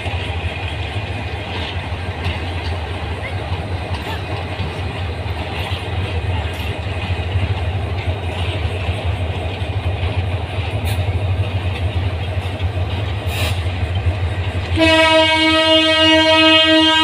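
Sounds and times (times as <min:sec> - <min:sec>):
train rumbling: 0:00.0 - 0:17.0
locomotive horn: 0:14.7 - 0:17.0.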